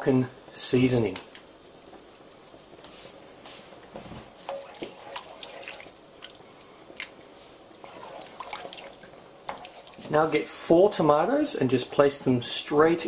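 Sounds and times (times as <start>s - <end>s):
spoon stirring sauce in pan: 4.3s - 10.4s
wet splashes: 4.5s - 6.4s, 7.8s - 10.1s.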